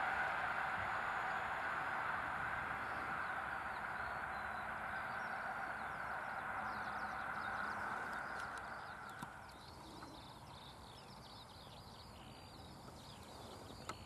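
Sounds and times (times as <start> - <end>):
passenger train wheels on rail: 0.0 - 10.4
birds chirping: 0.0 - 14.0.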